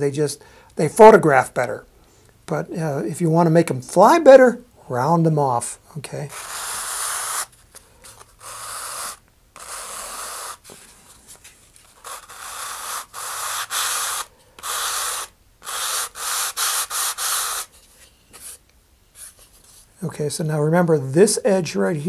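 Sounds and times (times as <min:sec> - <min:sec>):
sandpaper strokes on wood: 0:06.3 - 0:07.5, 0:08.4 - 0:10.7, 0:12.0 - 0:17.7.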